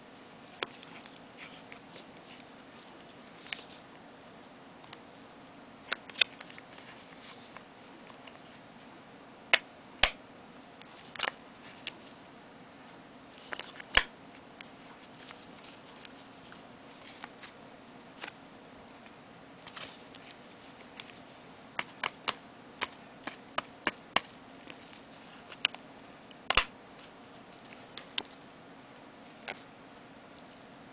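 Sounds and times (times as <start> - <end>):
faint low hum: 0.0 - 30.9
clicks and taps handling cardboard: 21.8 - 25.8, 26.5 - 26.7.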